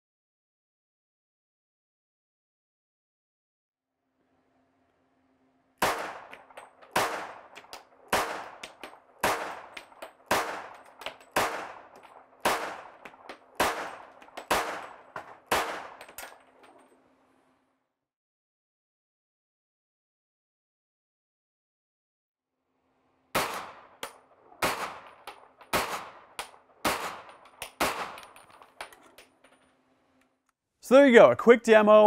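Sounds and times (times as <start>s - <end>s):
pistol shots echoing: 5.8s - 16.8s, 23.4s - 29.5s.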